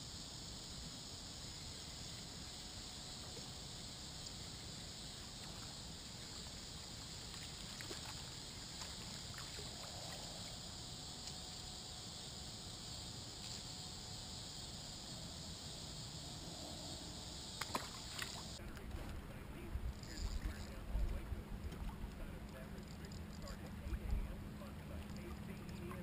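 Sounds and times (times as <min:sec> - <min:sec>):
low rumble and hiss: 0:00.0 - 0:26.0
high steady buzz: 0:08.2 - 0:26.0.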